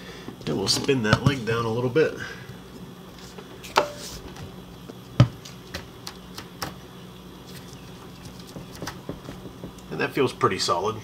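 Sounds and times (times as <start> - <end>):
pry bar knocking: 8.5 - 9.9.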